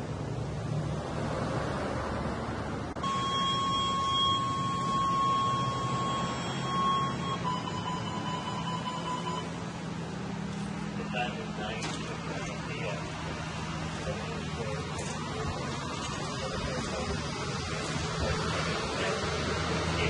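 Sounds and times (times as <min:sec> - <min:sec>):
outdoor background noise: 0:00.0 - 0:20.0
high electronic alert tone: 0:03.0 - 0:09.5.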